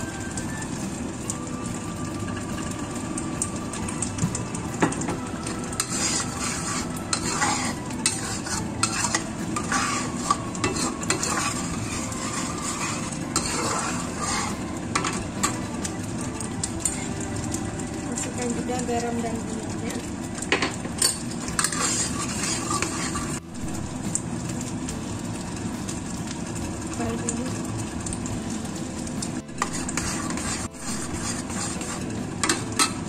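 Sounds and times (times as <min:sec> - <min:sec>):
spice paste sizzling in oil: 0:00.0 - 0:33.0
metal spatula scraping a wok: 0:05.4 - 0:15.9, 0:21.0 - 0:23.5, 0:29.5 - 0:33.0.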